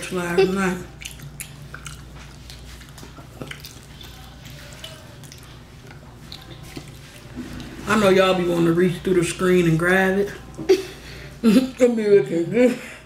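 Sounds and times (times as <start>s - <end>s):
faint low hum: 0.0s - 13.0s
wet chewing and mouth clicks: 0.5s - 7.7s.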